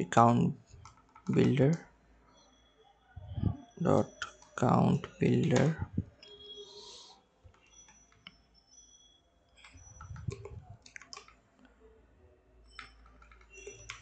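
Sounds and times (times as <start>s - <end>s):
keyboard typing clicks: 3.9s - 6.4s, 9.6s - 11.4s, 12.7s - 14.0s.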